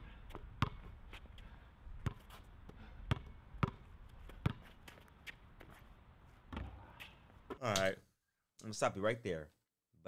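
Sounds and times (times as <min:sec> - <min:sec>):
basketball bouncing on court: 0:00.3 - 0:00.9, 0:02.0 - 0:02.3, 0:03.1 - 0:04.7.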